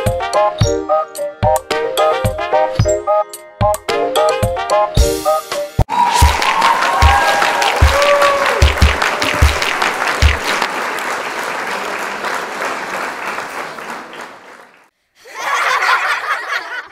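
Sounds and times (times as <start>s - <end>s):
upbeat music with kick drum: 0.0s - 10.6s
applause: 5.9s - 14.9s.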